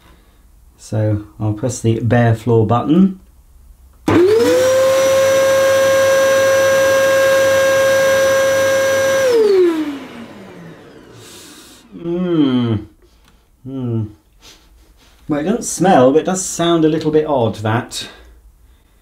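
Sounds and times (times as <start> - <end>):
vacuum cleaner motor whine: 4.1 - 12.0.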